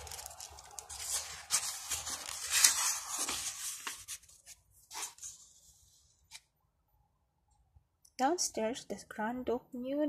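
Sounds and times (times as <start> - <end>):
book page turning: 0.0 - 6.5.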